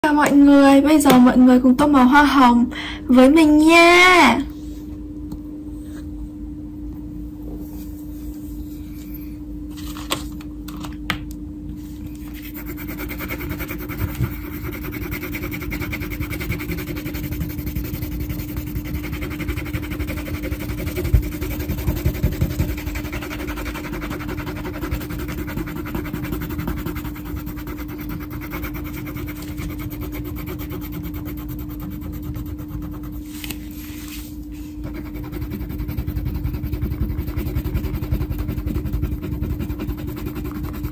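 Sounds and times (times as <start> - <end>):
steady low hum: 0.0 - 40.9
crayon scribbling on paper: 12.3 - 34.1, 34.8 - 40.9.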